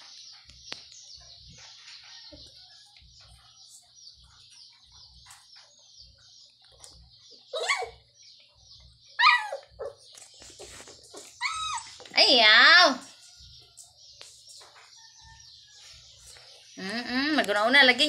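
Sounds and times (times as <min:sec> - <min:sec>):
puppy yelping: 0:07.5 - 0:08.0, 0:09.2 - 0:10.0, 0:11.4 - 0:12.0.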